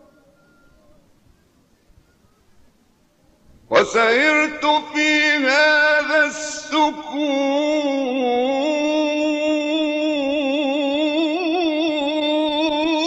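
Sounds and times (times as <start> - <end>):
solo voice singing long note: 3.7 - 13.0.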